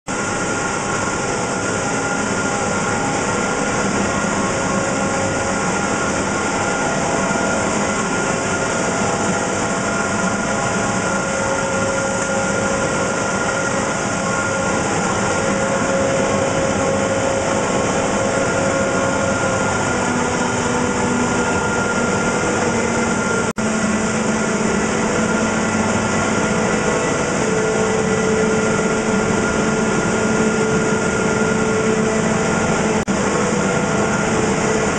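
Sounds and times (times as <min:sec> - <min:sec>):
machinery humming and hissing: 0:00.1 - 0:34.9.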